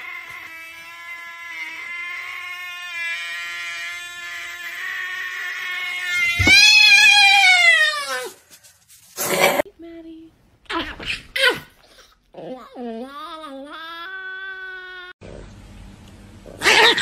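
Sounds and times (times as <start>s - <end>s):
cat yowling: 0.0s - 8.4s.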